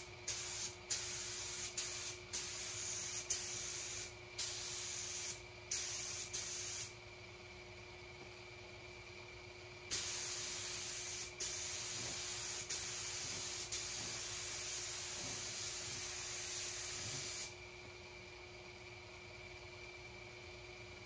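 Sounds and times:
air spray gun hissing: 0.0 - 6.9, 9.9 - 17.6.

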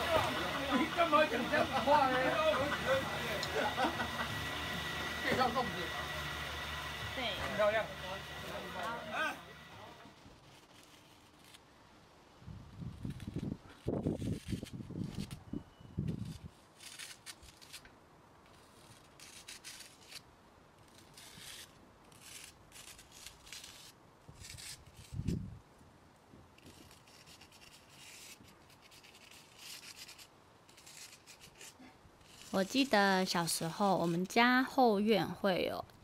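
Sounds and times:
paintbrush scraping on concrete: 9.8 - 11.6, 12.9 - 15.4, 18.5 - 25.4, 26.6 - 34.4.

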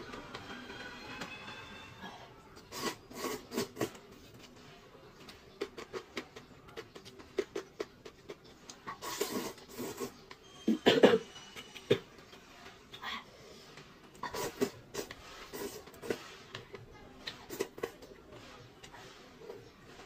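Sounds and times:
slurping noodles: 2.6 - 4.6, 5.3 - 10.4, 14.1 - 20.0
chewing and smacking: 2.6 - 10.5, 13.8 - 20.0.

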